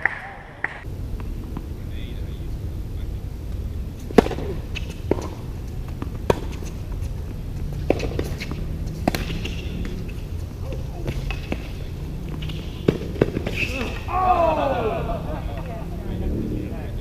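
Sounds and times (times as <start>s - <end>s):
steady low rumble: 0.3s - 17.0s
tennis ball struck by racquets: 3.5s - 15.8s.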